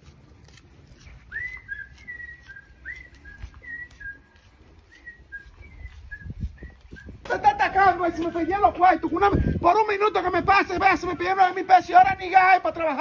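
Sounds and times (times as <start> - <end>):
person whistling a tune: 1.3 - 7.2.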